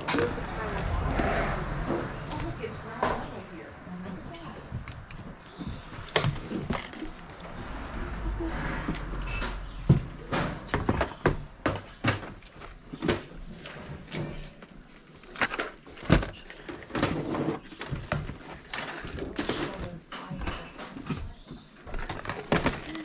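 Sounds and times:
plastic boxes knocking and clattering: 0.0 - 0.8, 9.4 - 23.0.

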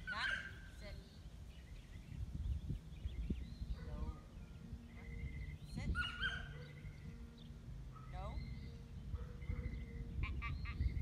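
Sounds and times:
birds calling: 0.0 - 11.0.

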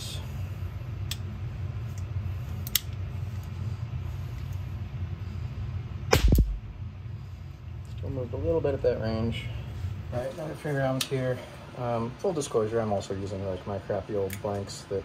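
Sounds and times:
blank gun sharp pop: 6.1 - 6.6.

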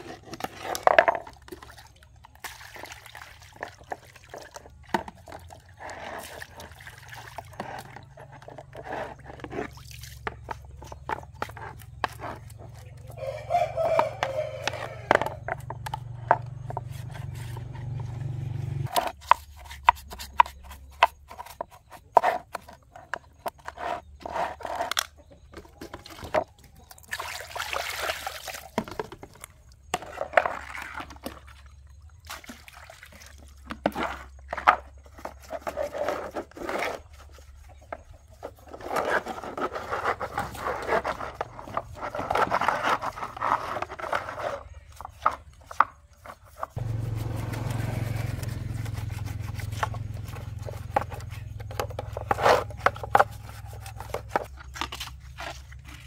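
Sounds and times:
hand tools scraping plastic: 0.0 - 1.7, 3.6 - 26.8, 28.7 - 31.4, 33.6 - 56.0
rough brushing strokes: 46.5 - 51.5.

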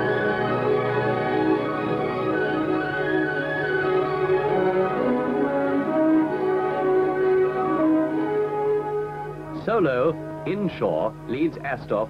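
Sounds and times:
orchestral music with held notes: 0.0 - 12.0.

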